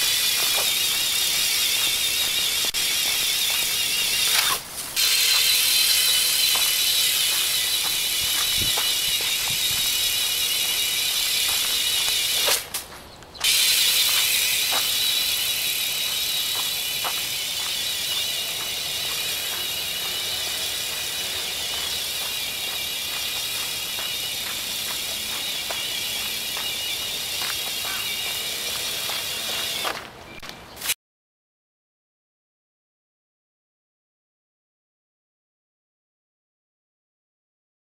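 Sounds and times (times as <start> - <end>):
small electric motor whine: 0.0 - 12.6, 13.4 - 30.1
flapping mechanism ticks: 0.0 - 30.1.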